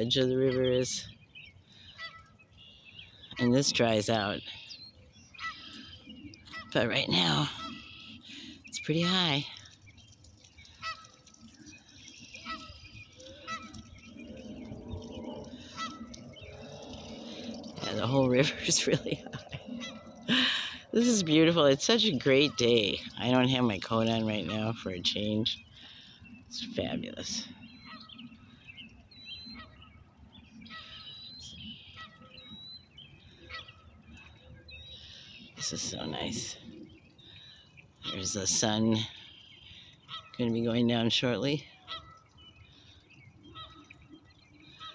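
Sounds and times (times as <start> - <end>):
small birds chirping: 0.0 - 44.9
geese honking: 1.8 - 2.4, 5.2 - 9.4, 10.6 - 11.6, 12.3 - 24.9, 33.3 - 34.0, 38.0 - 40.5, 41.8 - 44.1.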